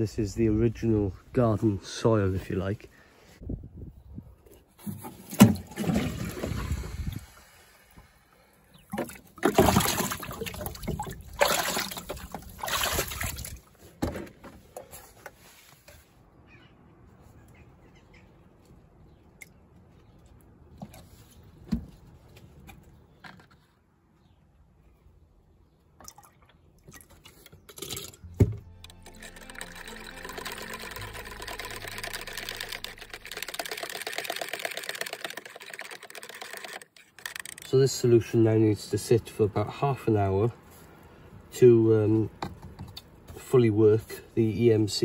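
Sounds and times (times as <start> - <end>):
water swirling in can: 5.2 - 7.6, 29.2 - 36.8
water splashing and gurgling: 5.4 - 7.6, 8.8 - 13.7.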